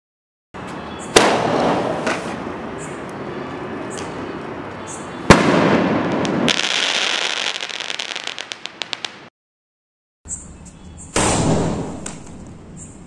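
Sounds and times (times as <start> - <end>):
firework crack and crackling: 1.2 - 2.5, 5.3 - 9.3
firework shell bang: 5.3 - 6.7.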